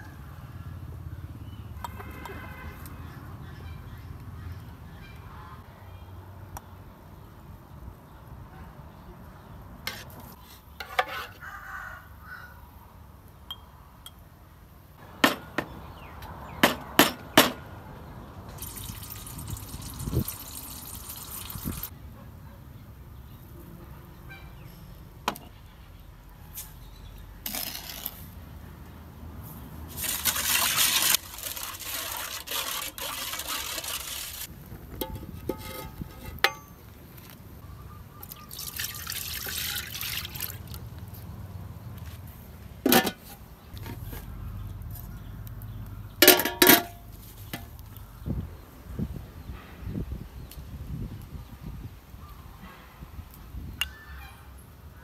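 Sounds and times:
liquid ladled and poured: 18.5 - 21.9, 29.9 - 34.5, 38.2 - 40.8
metal ladle clinking: 35.0 - 36.9, 42.9 - 43.4, 46.2 - 47.0.

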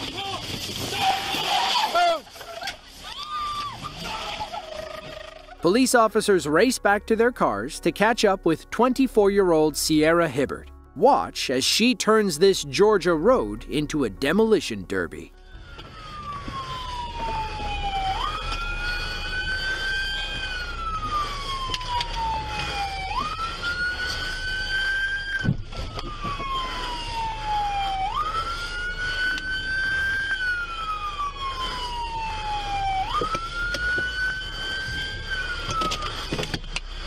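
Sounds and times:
police siren wailing: 0.0 - 7.6, 15.4 - 37.0
faint higher siren wailing: 1.8 - 5.7, 15.4 - 37.0.

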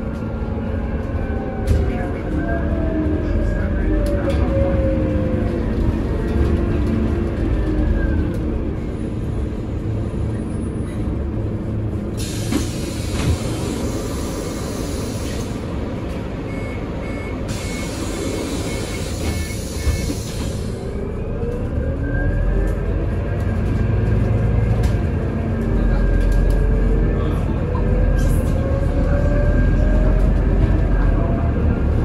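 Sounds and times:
bus engine low rumble: 0.0 - 32.0
short beep: 16.5 - 18.0.

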